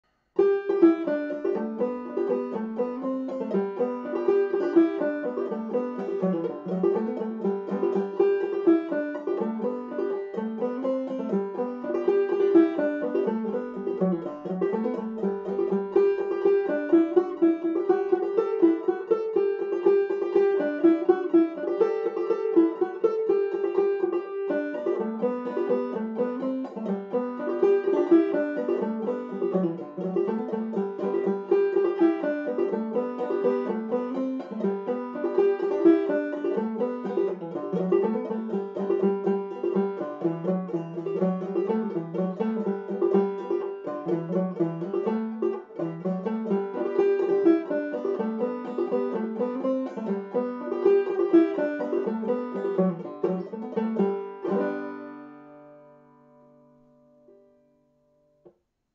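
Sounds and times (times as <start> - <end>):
banjo playing: 0.0 - 58.5.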